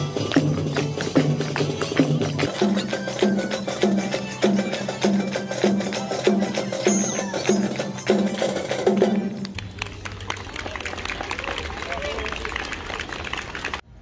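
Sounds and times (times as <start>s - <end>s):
drums marching beat: 0.0s - 9.6s.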